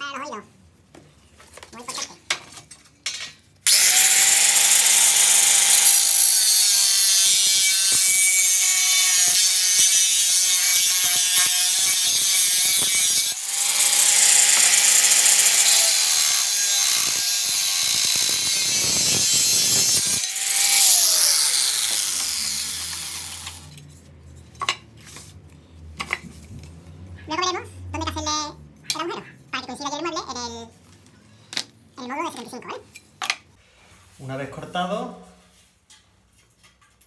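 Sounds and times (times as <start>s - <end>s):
angle grinder cutting metal: 3.7s - 23.8s.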